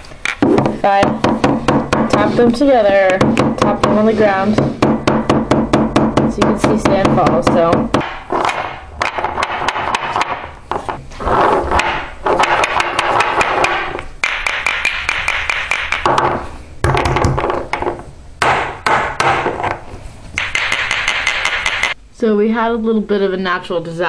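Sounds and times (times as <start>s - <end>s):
glass hourglasses tapping: 20.4s - 22.0s.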